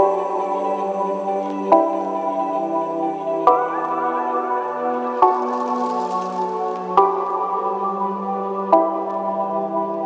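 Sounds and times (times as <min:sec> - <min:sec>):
soft ambient music chords: 0:00.0 - 0:10.0.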